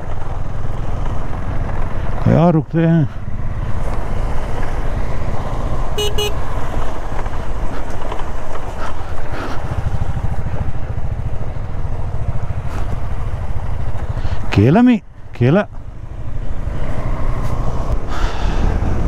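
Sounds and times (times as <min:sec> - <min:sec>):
motorcycle engines on dirt road: 0:00.0 - 0:19.0
short horn beeps: 0:06.0 - 0:06.4.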